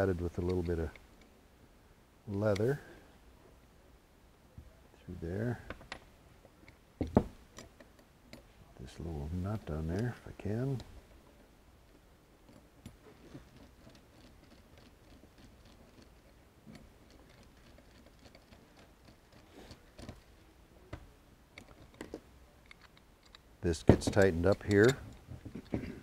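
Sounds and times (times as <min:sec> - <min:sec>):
screwdriver turning a screw: 0:12.5 - 0:20.2.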